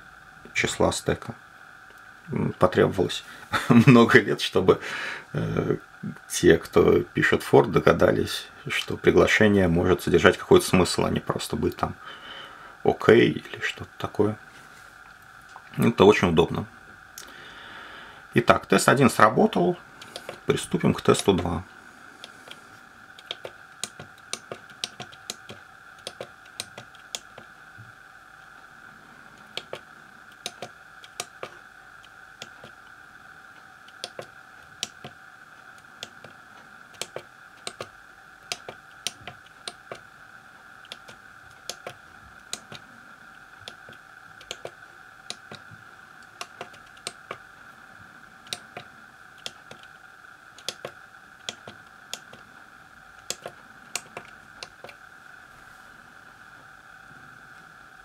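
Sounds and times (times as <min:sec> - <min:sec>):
faint high hum: 0:00.0 - 0:58.0
calculator keys clicking: 0:23.2 - 0:27.4, 0:29.6 - 0:29.8, 0:30.4 - 0:31.6, 0:33.9 - 0:35.2, 0:36.0 - 0:37.9, 0:38.5 - 0:40.0, 0:40.9 - 0:42.8, 0:43.6 - 0:45.6, 0:46.3 - 0:47.4, 0:50.6 - 0:52.4, 0:53.2 - 0:55.0.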